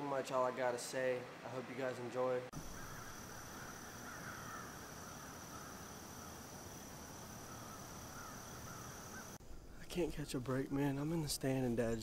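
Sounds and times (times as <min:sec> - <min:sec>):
wavering insect chirps: 0:02.6 - 0:09.4
high-pitched insect trill: 0:02.6 - 0:09.7.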